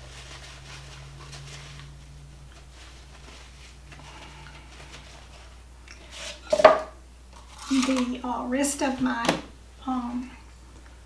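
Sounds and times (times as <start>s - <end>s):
paper towel rustling: 0.0s - 6.6s
low steady hum: 0.0s - 11.0s.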